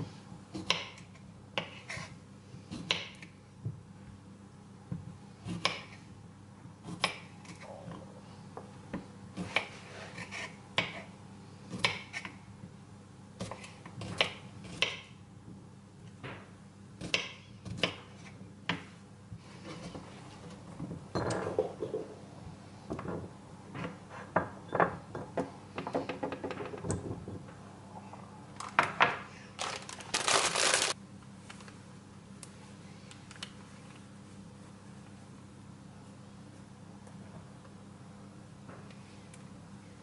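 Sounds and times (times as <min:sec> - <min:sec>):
knife scraping board: 0:09.4 - 0:10.6.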